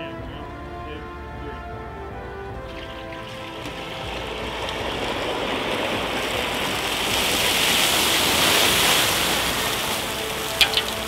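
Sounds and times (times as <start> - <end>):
hot oil spattering: 10.5 - 11.0.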